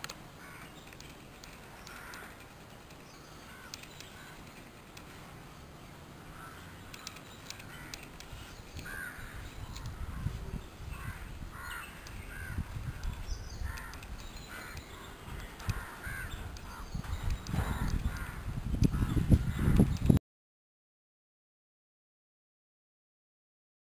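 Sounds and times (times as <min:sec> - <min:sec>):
crow cawing: 0:00.4 - 0:00.7, 0:01.9 - 0:02.4, 0:03.5 - 0:04.4, 0:06.3 - 0:06.8, 0:08.8 - 0:10.3, 0:11.0 - 0:12.7, 0:13.6 - 0:16.9, 0:17.6 - 0:18.4.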